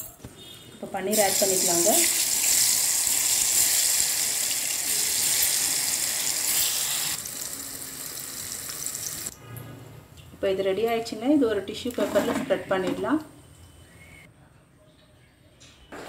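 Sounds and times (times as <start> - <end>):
cheese cubes sizzling in hot oil: 1.1 - 9.3.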